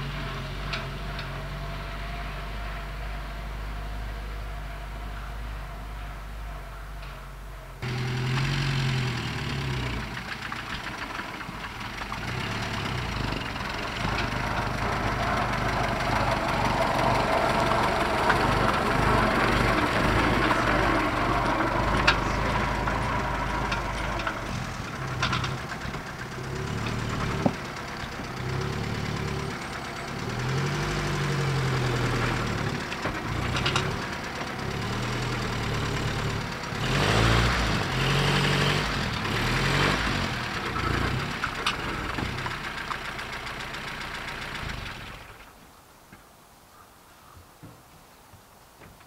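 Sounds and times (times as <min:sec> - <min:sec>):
van engine running: 0:00.0 - 0:45.6.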